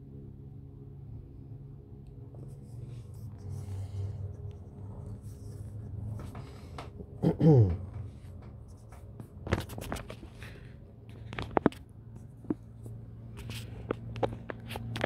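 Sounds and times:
low vocal mm: 7.2 - 7.9.

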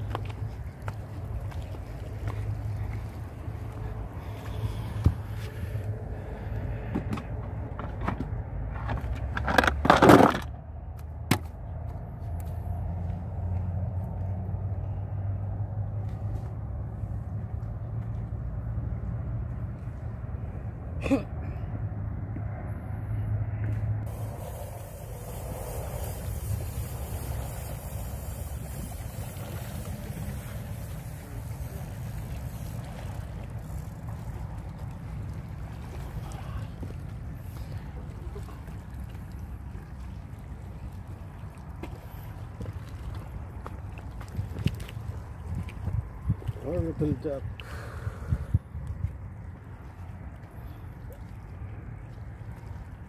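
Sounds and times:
sea wash: 0.0 - 7.8, 24.1 - 53.0
boat motor humming: 0.0 - 9.3, 23.7 - 53.0
wind rumbling on microphone: 11.6 - 53.0
loud noisy rush: 24.1 - 33.6.

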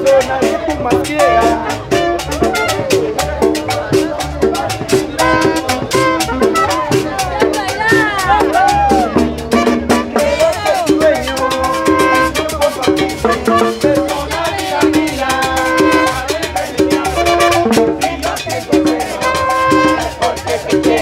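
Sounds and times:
latin dance music: 0.0 - 21.0.

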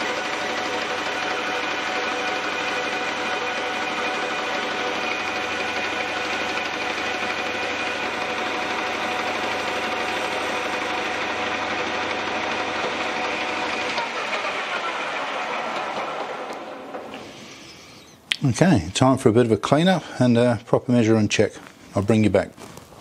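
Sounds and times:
metal lathe whirring: 0.0 - 18.1.

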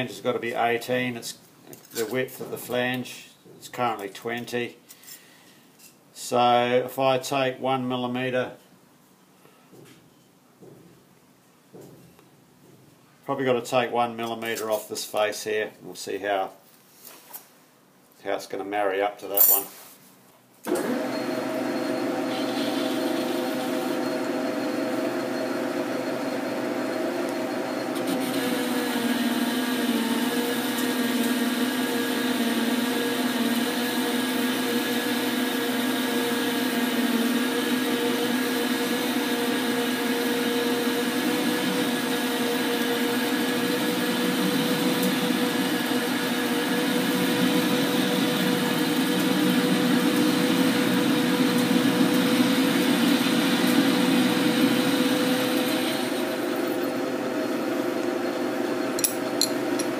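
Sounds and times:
lathe machine whine: 20.7 - 59.0.

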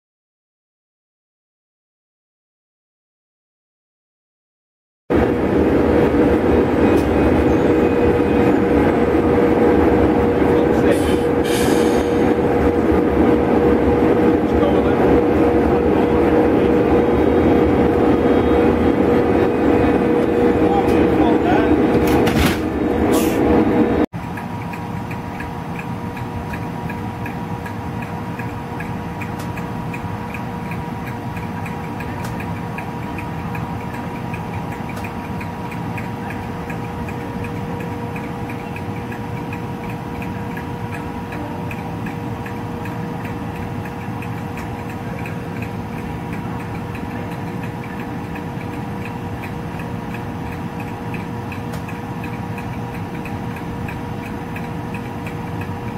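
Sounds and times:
electric locomotive humming: 5.1 - 55.9
quick light ticking: 24.2 - 55.9.

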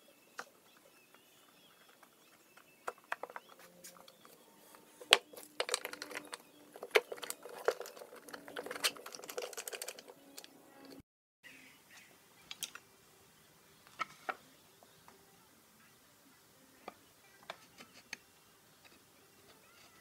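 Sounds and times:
plastic clicks and rattles: 1.6 - 4.4, 5.0 - 11.0, 12.5 - 12.8.

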